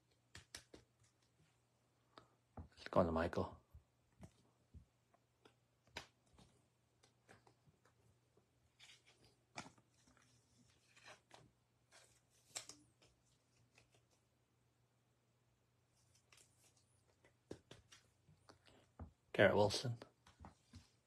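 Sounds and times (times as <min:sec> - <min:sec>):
trading cards clicking and rustling: 0:00.1 - 0:01.3, 0:08.8 - 0:14.2.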